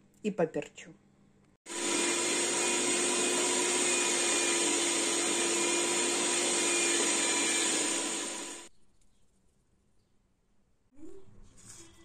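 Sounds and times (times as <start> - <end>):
electric meat grinder running: 1.7 - 8.7.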